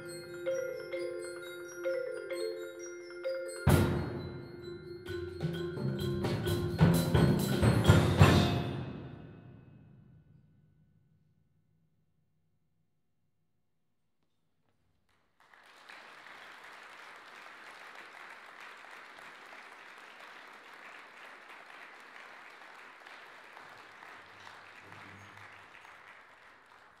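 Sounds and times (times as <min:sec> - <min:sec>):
audience applauding: 0:15.3 - 0:27.0.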